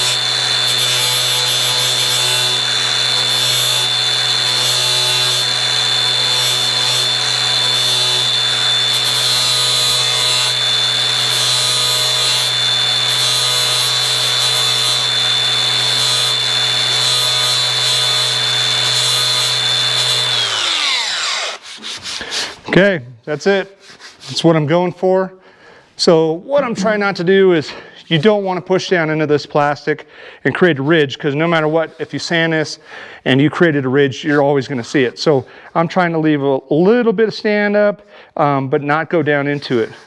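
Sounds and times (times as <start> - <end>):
angle grinder motor whine: 0.0 - 21.6
grinder disc spinning down: 0.0 - 21.6.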